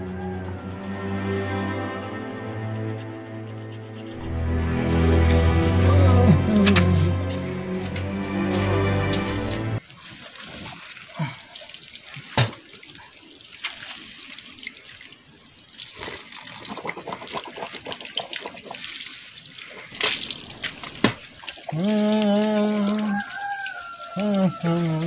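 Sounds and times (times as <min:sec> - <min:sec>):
water splashing in hands: 0:06.3 - 0:25.0.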